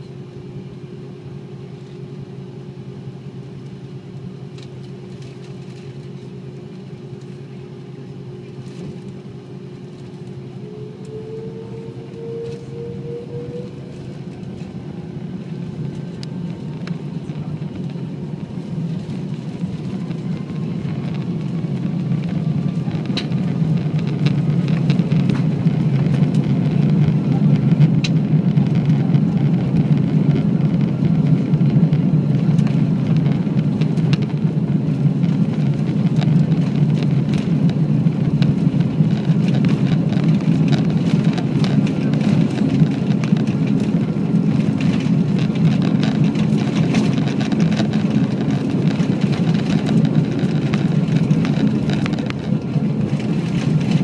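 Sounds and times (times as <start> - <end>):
jet engines spooling up: 9.8 - 35.8.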